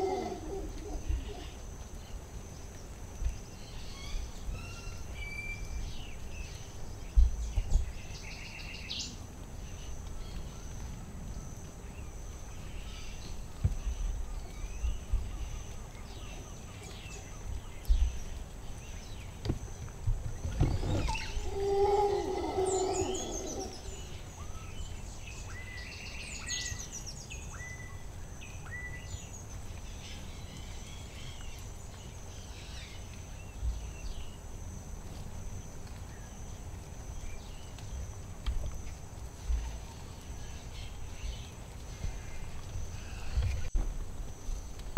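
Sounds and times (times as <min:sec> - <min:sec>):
bird calls: 0:20.3 - 0:31.6.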